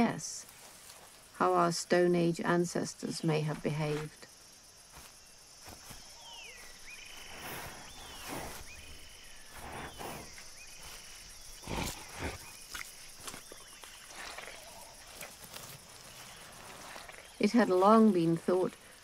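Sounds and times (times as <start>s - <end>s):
high insect drone: 0.0s - 19.0s
rustles and soft thumps: 3.5s - 17.2s.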